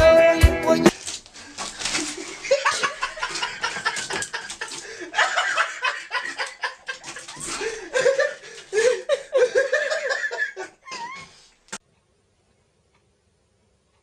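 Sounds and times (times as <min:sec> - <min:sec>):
people laughing and giggling: 0:01.8 - 0:11.3.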